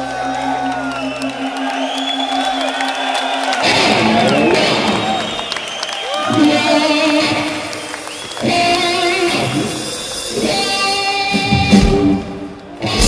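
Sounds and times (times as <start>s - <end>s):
blues-rock band playing live: 3.4s - 5.5s, 6.3s - 13.0s.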